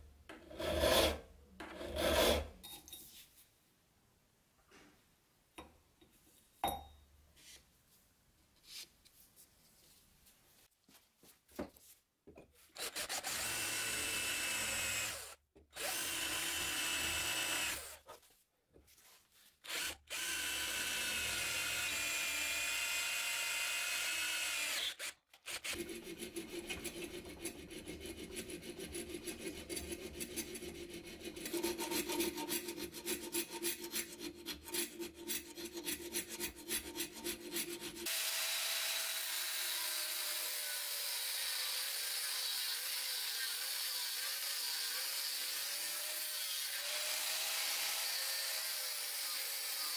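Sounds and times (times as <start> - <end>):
hand file rasping metal: 0.4 - 2.6, 25.7 - 38.1
electric drill whining through metal: 12.8 - 18.0, 19.7 - 25.8, 38.0 - 49.9.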